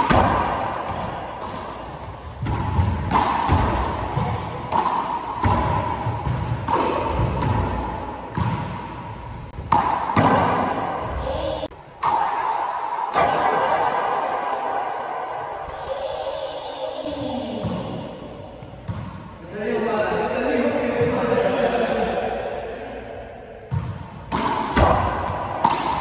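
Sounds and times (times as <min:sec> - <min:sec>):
rubber ball smacking and echoing: 0:00.0 - 0:13.7, 0:17.3 - 0:19.4, 0:23.6 - 0:26.0.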